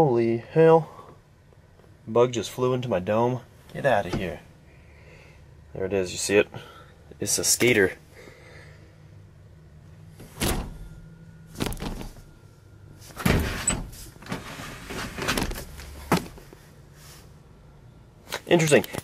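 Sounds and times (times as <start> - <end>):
knocks and bumps in car: 10.2 - 12.3, 15.2 - 16.4.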